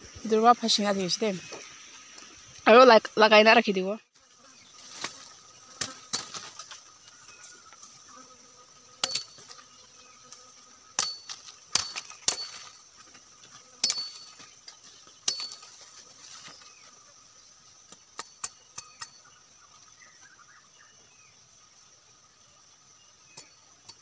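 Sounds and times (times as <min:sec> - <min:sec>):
machete chopping wood: 0:05.8 - 0:06.6, 0:09.0 - 0:09.5, 0:11.0 - 0:12.8, 0:13.8 - 0:14.4, 0:15.2 - 0:15.7.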